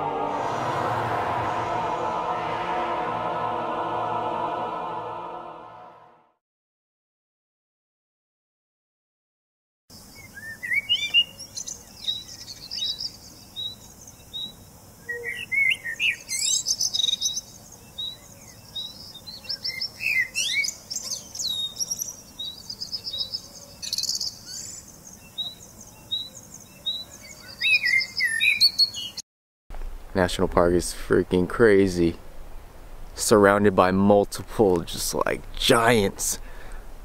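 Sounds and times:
birds chirping and trilling: 0:10.0 - 0:29.2.

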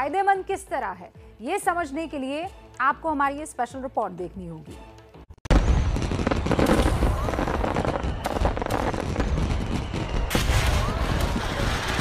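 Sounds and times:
fireworks bangs: 0:05.5 - 0:12.0
fireworks crackling and popping: 0:05.5 - 0:12.0.

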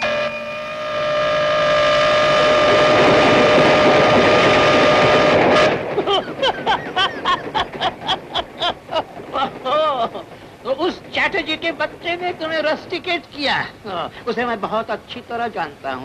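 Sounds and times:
train horn: 0:00.0 - 0:06.0
train rumbling past: 0:00.0 - 0:16.0
man laughing: 0:05.9 - 0:10.4.

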